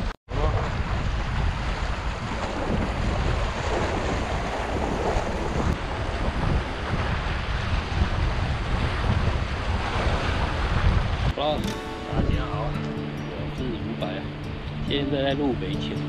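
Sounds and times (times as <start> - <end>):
wind buffeting microphone: 0.0 - 16.0
waves splashing on rocky shore: 0.3 - 12.3.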